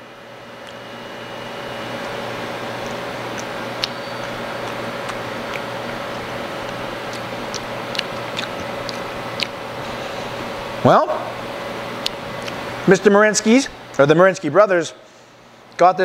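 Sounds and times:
fan hum and hiss: 0.0s - 16.0s
person chewing: 2.8s - 10.7s, 12.0s - 12.6s.

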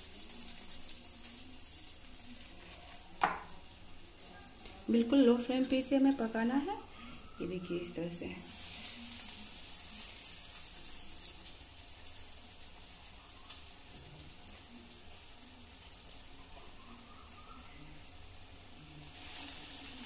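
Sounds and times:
oil sizzling with fine crackles: 0.0s - 20.0s.

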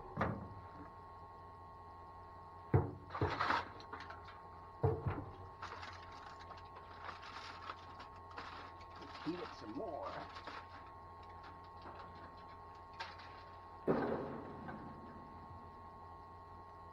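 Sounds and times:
faint steady hum: 0.0s - 16.9s
aluminium foil crinkling: 5.5s - 13.6s.

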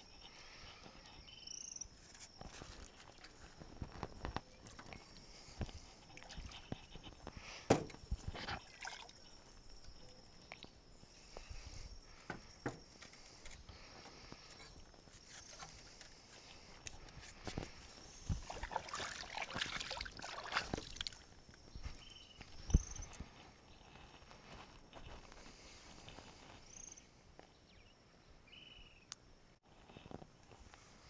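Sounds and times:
hands splashing in water: 18.4s - 21.2s
water dripping: 18.4s - 21.2s.

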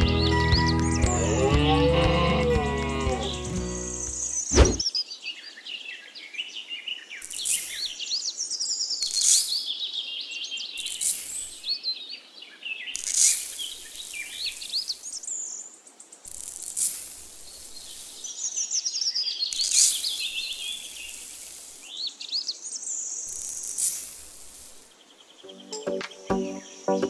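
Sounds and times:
birds chirping: 0.0s - 16.6s, 17.3s - 27.0s
sharp falling sweep: 4.5s - 4.8s
sand poured into plastic mould: 13.0s - 15.2s, 16.3s - 18.3s, 19.5s - 22.0s, 23.3s - 24.9s.

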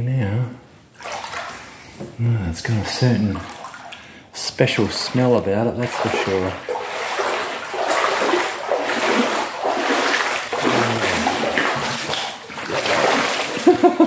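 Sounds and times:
water sloshing around wading legs: 0.9s - 1.9s, 2.7s - 14.0s.

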